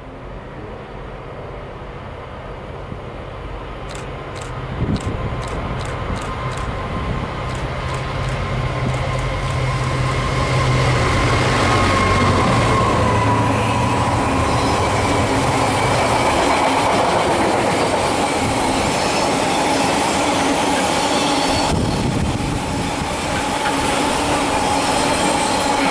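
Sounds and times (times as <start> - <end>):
diesel locomotive engine: 0.0 - 25.9
high wheel squeal: 18.7 - 25.9.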